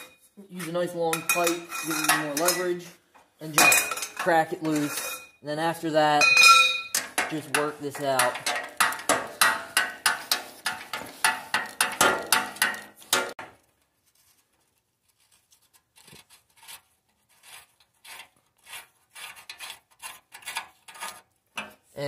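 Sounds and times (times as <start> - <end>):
faint metal scraping: 0.0 - 3.0, 3.8 - 5.4.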